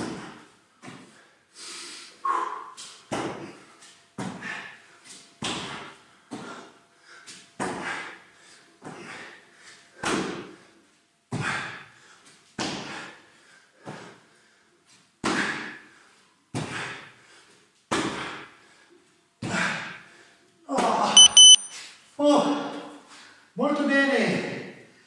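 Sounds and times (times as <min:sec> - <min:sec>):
thumps on rubber gym floor: 0:03.1 - 0:03.5, 0:05.4 - 0:05.8, 0:10.0 - 0:10.5
interval timer high beeps: 0:21.2 - 0:21.7.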